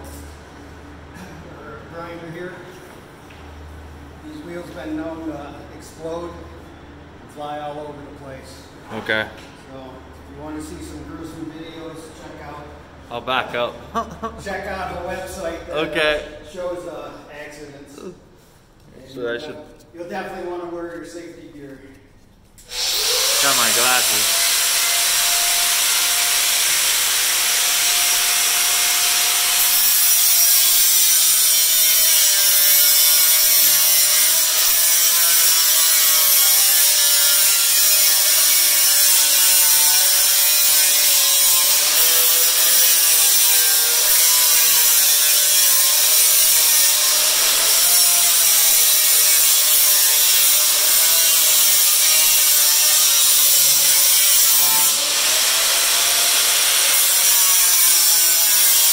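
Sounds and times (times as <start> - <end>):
angle grinder cutting metal: 22.6 - 58.9.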